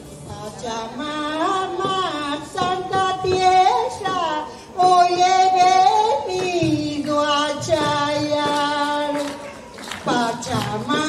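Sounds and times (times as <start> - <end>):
woman singing: 0.2 - 11.0.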